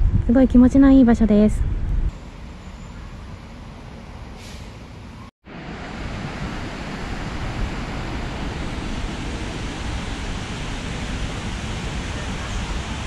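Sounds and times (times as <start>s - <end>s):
water rushing: 5.5s - 13.0s.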